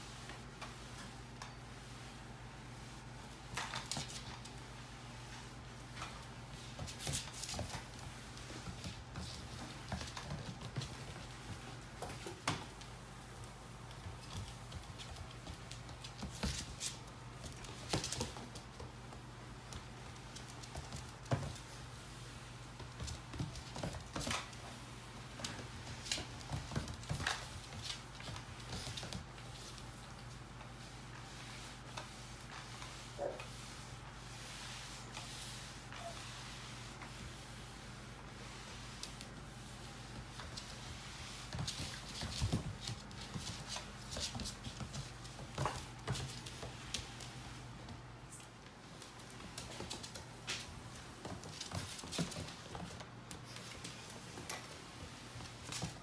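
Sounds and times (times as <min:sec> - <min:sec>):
mop pad sliding over floor: 0:00.0 - 0:56.0.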